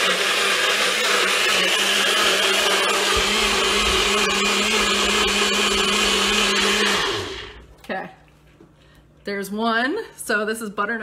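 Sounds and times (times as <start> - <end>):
blender motor running: 0.0 - 7.6
deep rumble: 3.1 - 6.6.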